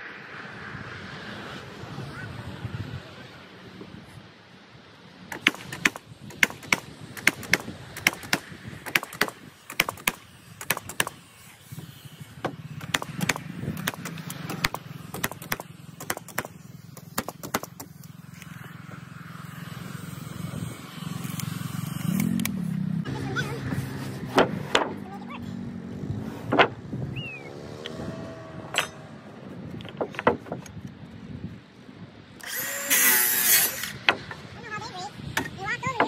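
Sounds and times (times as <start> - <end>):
nail gun firing: 5.3 - 11.3, 12.4 - 17.9, 32.4 - 34.4.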